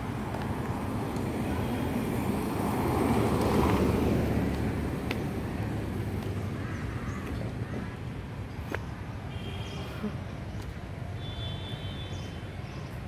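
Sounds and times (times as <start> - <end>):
traffic noise: 0.0 - 13.0
vehicle passing close by: 1.7 - 7.2.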